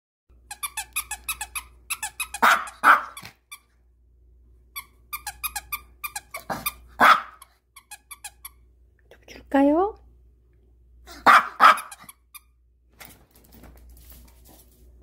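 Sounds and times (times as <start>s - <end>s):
dog toy squeaking: 0.4s - 3.7s, 4.8s - 8.6s, 11.4s - 12.5s
dog barking: 2.4s - 3.3s, 6.5s - 7.5s, 11.1s - 12.1s.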